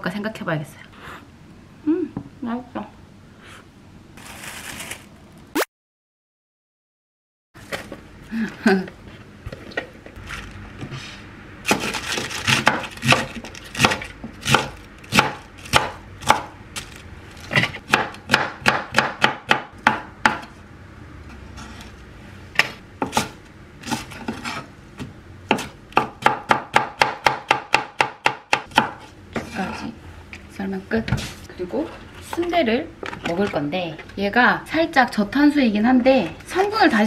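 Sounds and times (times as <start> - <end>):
knife chopping on wooden board: 11.7 - 16.5, 17.5 - 20.5, 22.6 - 29.5.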